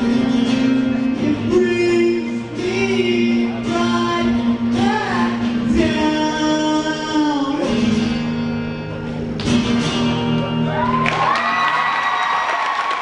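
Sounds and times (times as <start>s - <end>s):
man singing: 0.0s - 8.2s
strummed acoustic guitar: 0.0s - 10.8s.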